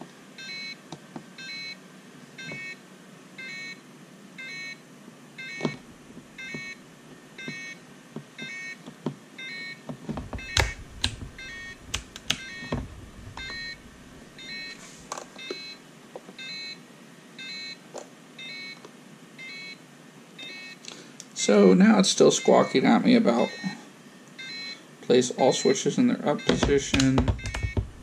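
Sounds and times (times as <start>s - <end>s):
plastic switch clicks: 10.4s - 12.5s.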